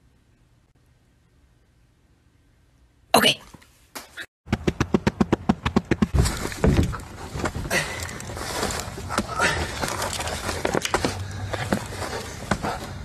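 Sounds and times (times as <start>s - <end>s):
scuffling and thrashing: 4.0s - 13.0s
fast sharp knocks: 4.5s - 6.2s.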